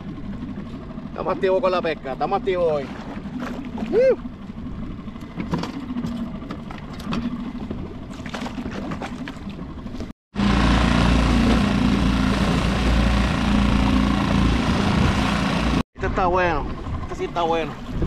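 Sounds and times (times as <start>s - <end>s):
low drone: 10.4s - 17.3s.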